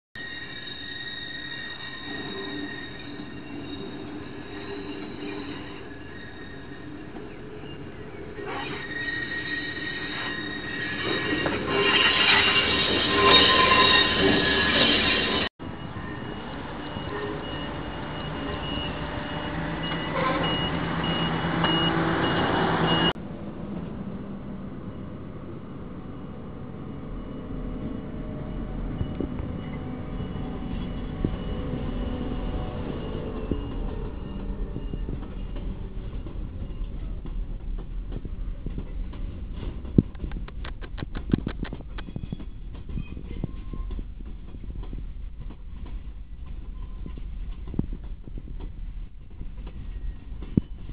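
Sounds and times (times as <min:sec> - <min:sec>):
diesel locomotive engine running: 0:00.2 - 0:50.9
steady low rumble: 0:23.2 - 0:50.9
wheels clicking and knocking on track: 0:29.0 - 0:50.9.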